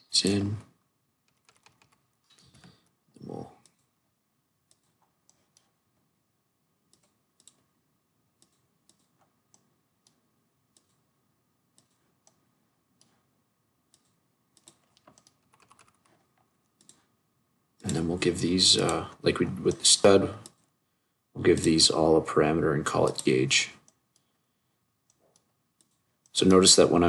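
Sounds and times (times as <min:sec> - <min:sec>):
computer mouse clicks: 0:01.2 - 0:02.9, 0:03.6 - 0:03.9, 0:04.6 - 0:05.8, 0:06.9 - 0:07.7, 0:08.4 - 0:11.1, 0:11.7 - 0:12.4, 0:13.9 - 0:17.1, 0:23.0 - 0:24.4, 0:25.0 - 0:26.3.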